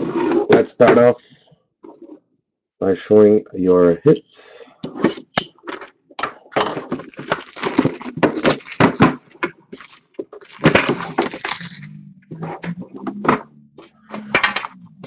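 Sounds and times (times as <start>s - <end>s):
card packaging clicking and rustling: 4.9s - 11.9s.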